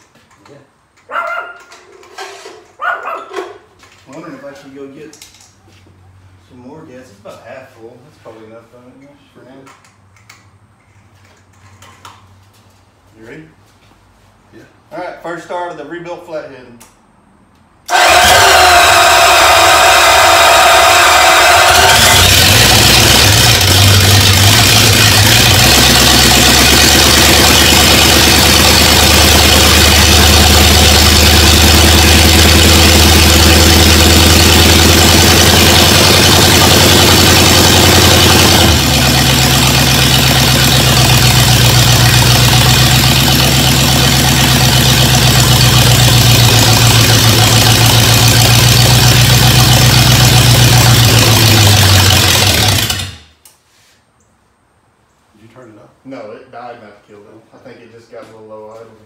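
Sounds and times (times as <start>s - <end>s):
car engine running: 17.9s - 53.3s.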